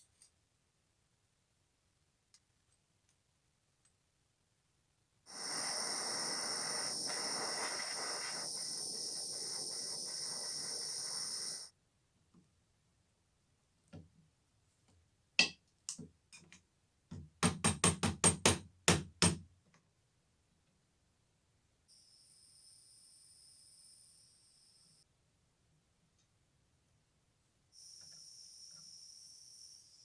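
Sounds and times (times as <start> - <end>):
steady hiss: 5.2 - 11.8.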